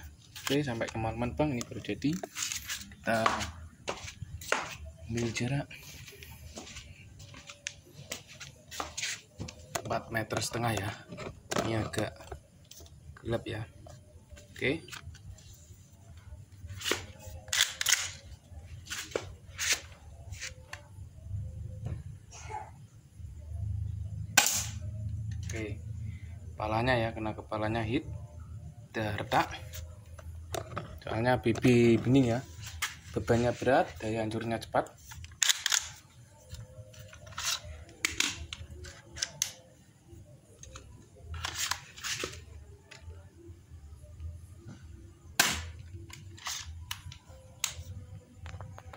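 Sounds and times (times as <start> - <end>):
airsoft pistol clicks and hisses: 16.8 - 18.3
airsoft pistol shots: 24.4 - 24.8, 45.4 - 45.8.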